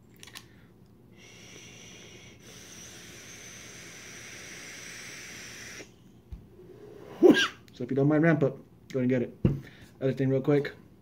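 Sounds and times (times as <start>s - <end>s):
vape hiss and sizzle: 1.2s - 5.9s
soft thump: 9.4s - 9.6s.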